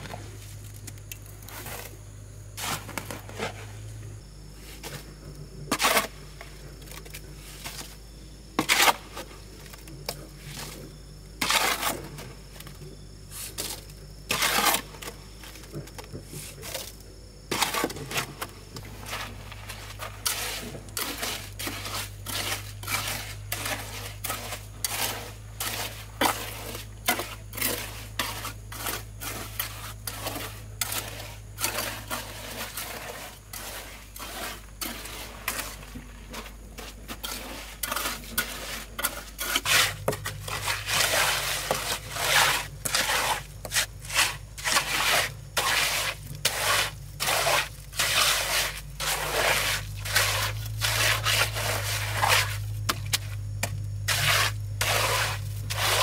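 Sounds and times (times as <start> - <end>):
trowel scraping on stones and mortar: 0.0 - 2.0, 2.6 - 4.0, 5.7 - 8.0, 8.6 - 10.8, 11.4 - 12.5, 13.3 - 15.6, 16.4 - 56.0.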